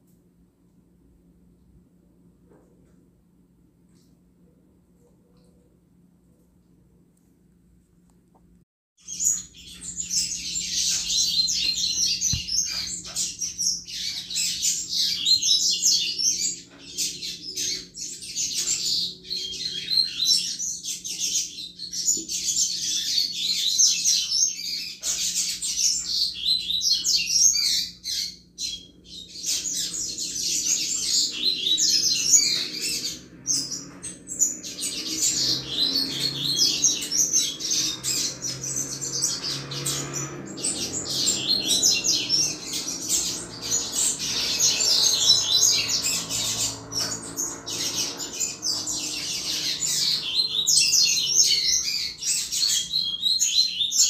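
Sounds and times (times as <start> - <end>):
bird high twittering song: 9.0 - 54.0.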